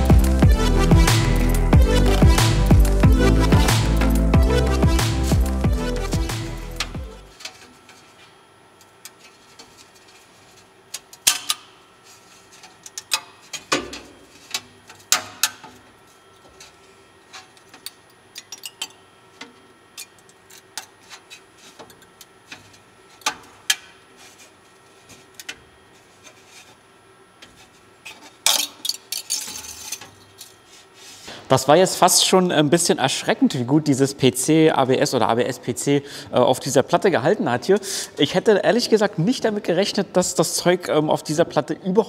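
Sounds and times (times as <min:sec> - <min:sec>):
steel sheet clicks and creaks: 0:06.7 - 0:11.7, 0:12.5 - 0:23.9.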